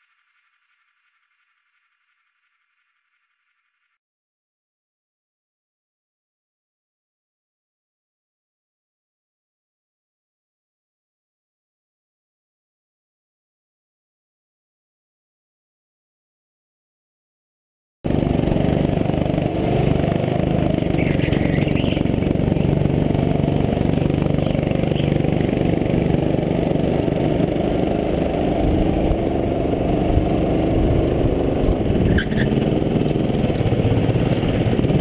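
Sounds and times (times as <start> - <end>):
go-kart engine under load: 18.1 - 35.0.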